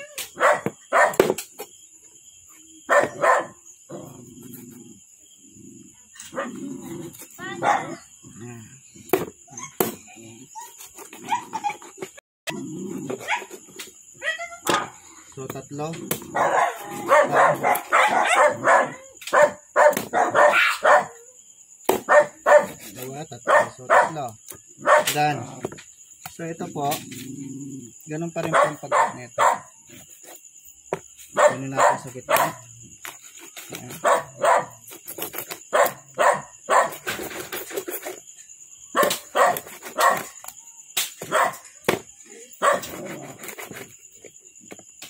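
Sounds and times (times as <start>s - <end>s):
dog barking: 0.4s - 1.2s, 2.9s - 3.6s, 7.4s - 8.1s, 14.2s - 15.0s, 16.3s - 21.3s, 22.0s - 22.8s, 23.4s - 25.2s, 28.4s - 29.7s, 31.3s - 32.7s, 34.0s - 34.8s, 35.7s - 37.0s, 38.9s - 40.4s, 41.2s - 41.6s, 42.6s - 43.0s.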